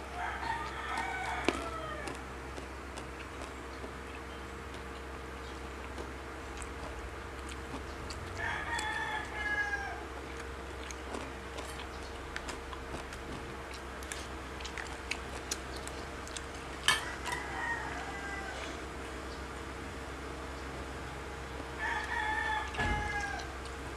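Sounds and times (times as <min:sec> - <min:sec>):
rooster crowing: 0:00.0 - 0:02.2, 0:08.2 - 0:10.2, 0:16.9 - 0:19.1, 0:21.0 - 0:23.9
clicks of eating food: 0:00.4 - 0:09.4, 0:10.2 - 0:19.4.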